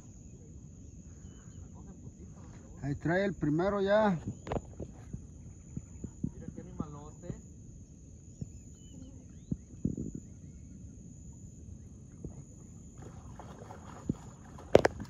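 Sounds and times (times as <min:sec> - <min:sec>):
fish splashing at water surface: 0:13.0 - 0:15.0.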